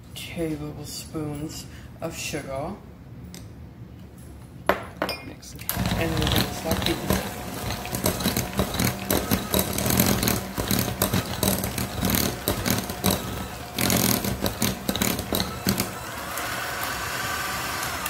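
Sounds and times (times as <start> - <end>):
hand mixer motor running: 5.7 - 18.0
beaters clattering against glass bowl: 5.8 - 15.9.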